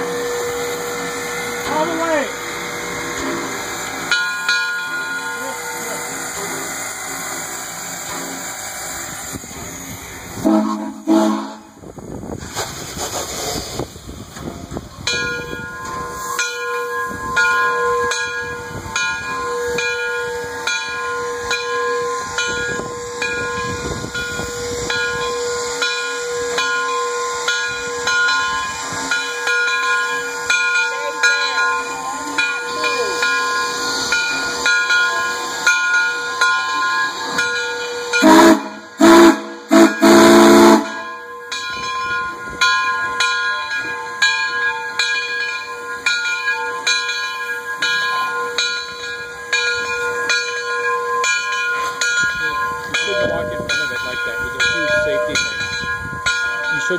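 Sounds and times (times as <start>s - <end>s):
steam locomotive hissing: 0.0s - 56.9s
steam whistle blasts: 10.4s - 11.8s, 38.2s - 41.2s.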